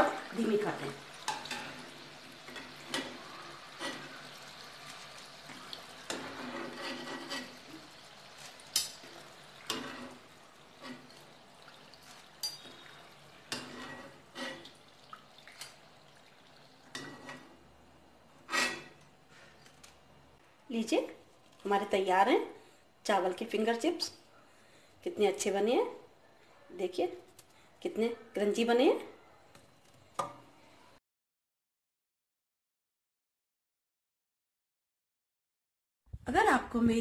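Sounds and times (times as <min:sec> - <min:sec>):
oil sizzling: 0:00.0 - 0:20.2
metal ladle scraping and clinking: 0:06.1 - 0:07.8, 0:12.4 - 0:14.7.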